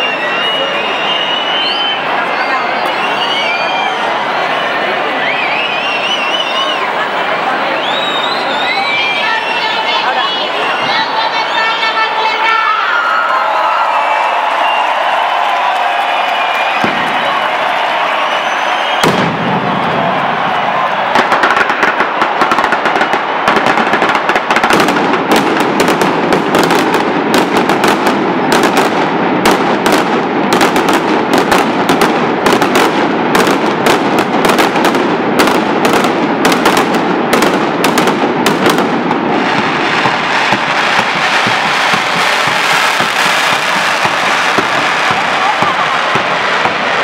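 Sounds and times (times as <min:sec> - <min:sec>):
firecrackers crackling: 0:00.0 - 0:47.0
sharp firecracker bangs: 0:16.4 - 0:47.0.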